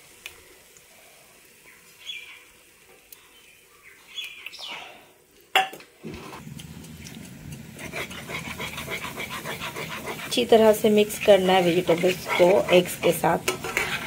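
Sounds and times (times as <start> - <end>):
spatula scraping and stirring in pan: 7.2 - 14.0.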